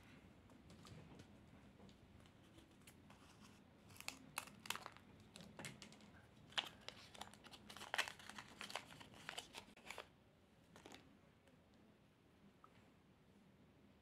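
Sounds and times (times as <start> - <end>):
paper and plastic tape crinkling: 2.2 - 10.1, 10.8 - 11.0.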